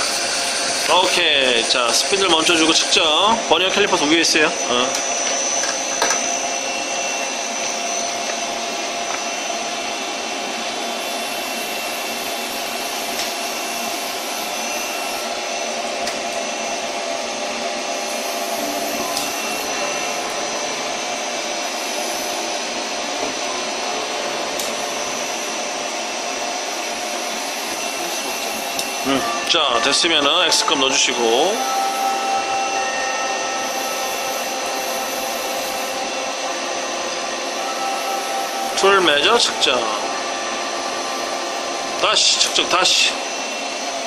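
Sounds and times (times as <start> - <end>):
lathe whirring with high whine: 0.0 - 44.0.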